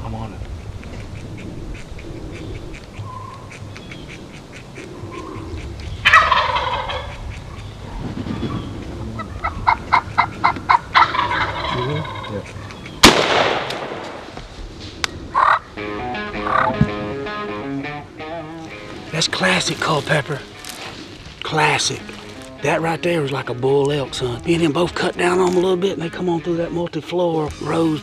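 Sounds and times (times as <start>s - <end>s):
turkey gobbling: 0.4s - 13.5s, 15.1s - 17.4s
sharp turkey cutting calls: 0.4s - 14.2s, 15.0s - 17.4s, 18.2s - 25.8s
shotgun blast: 13.0s - 14.3s.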